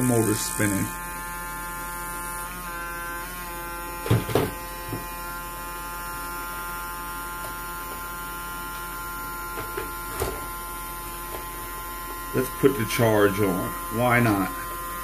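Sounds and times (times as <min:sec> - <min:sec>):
electrical hum with high whine: 0:00.0 - 0:15.0
sharp knocks on bench: 0:04.0 - 0:05.1.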